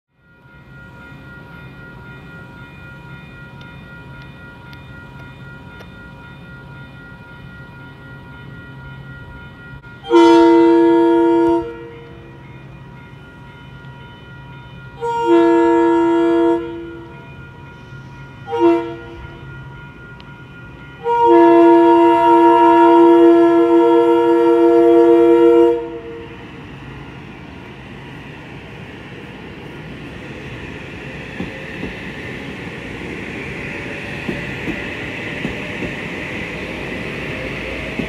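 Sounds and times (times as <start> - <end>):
crossing warning bell ringing: 0.1 - 38.0
train horn blasts: 10.0 - 12.3, 15.0 - 17.1, 18.4 - 19.4, 21.0 - 26.3.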